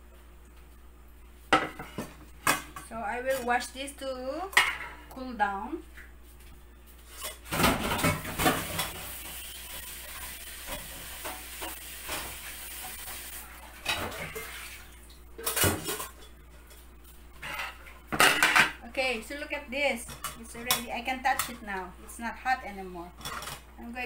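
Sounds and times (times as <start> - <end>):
dishes and utensils clattering: 7.1 - 14.7, 15.4 - 16.8, 17.4 - 18.8, 23.2 - 23.7
tap water running: 7.2 - 16.8.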